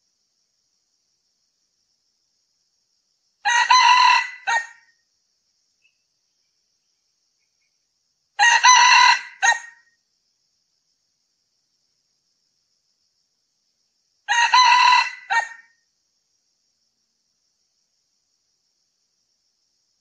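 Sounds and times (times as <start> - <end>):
rooster crowing: 3.4 - 4.8, 8.4 - 9.8, 14.3 - 15.7.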